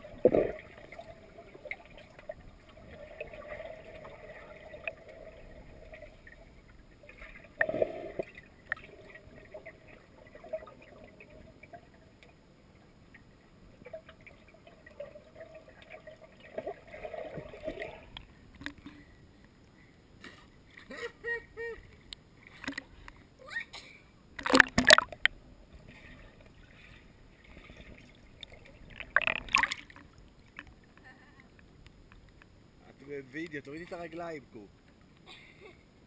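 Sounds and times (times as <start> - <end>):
underwater gurgling and bubbling: 0.0 - 18.2, 24.4 - 30.2.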